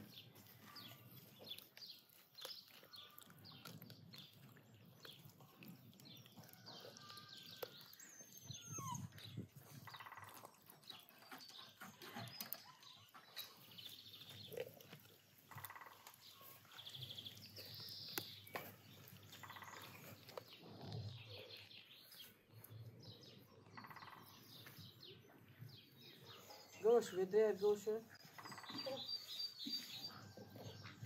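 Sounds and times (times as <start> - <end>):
bird chirps: 6.1 - 14.6, 15.5 - 31.0.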